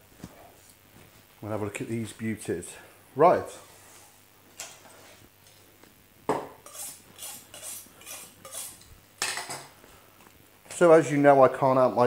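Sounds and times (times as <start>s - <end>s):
knife scraping on sharpening steel: 6.6s - 8.8s.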